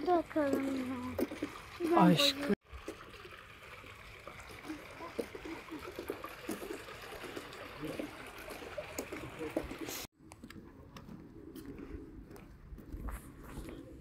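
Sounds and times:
fountain water splashing: 0.0s - 10.1s.

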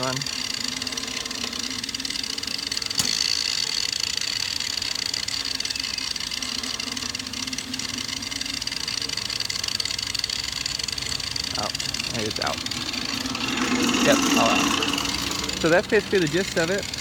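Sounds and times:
angle grinders whining: 0.0s - 17.0s.

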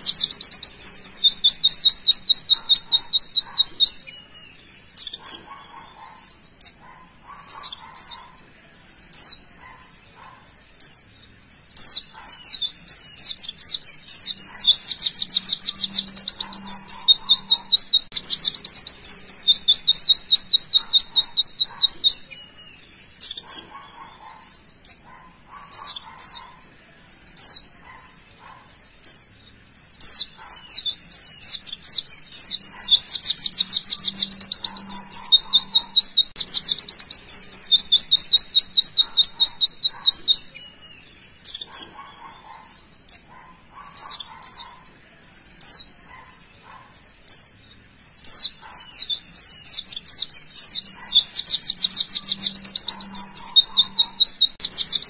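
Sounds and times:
bird chirps and whistles: 30.1s - 40.6s, 48.3s - 55.0s.

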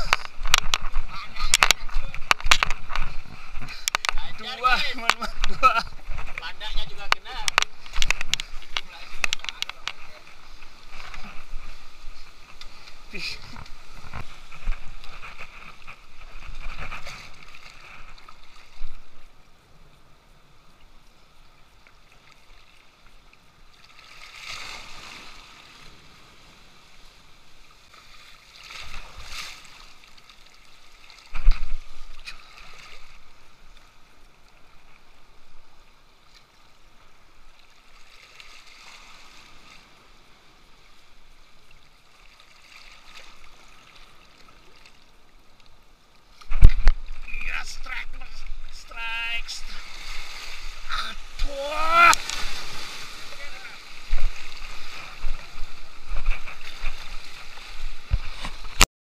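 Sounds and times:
sea waves against rock: 23.8s - 33.5s, 46.3s - 58.9s.

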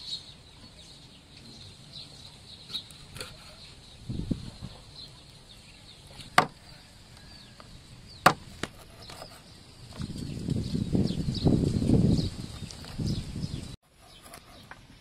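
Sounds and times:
cleaver chopping on wooden block: 6.2s - 6.6s, 8.2s - 9.3s.

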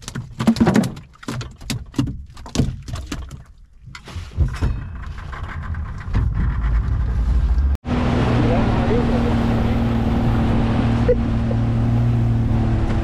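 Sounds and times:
knocks and clatter: 0.0s - 7.8s
boat engine rumble: 2.1s - 13.0s.

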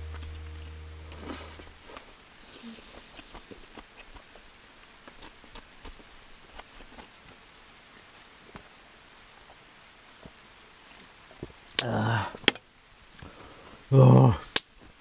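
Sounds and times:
rain hissing: 0.0s - 3.1s.

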